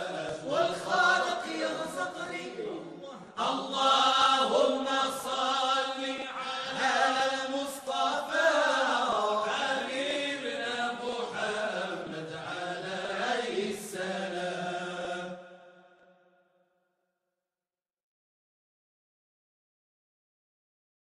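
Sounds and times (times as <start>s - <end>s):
voices chanting a devotional song: 0.0s - 16.4s.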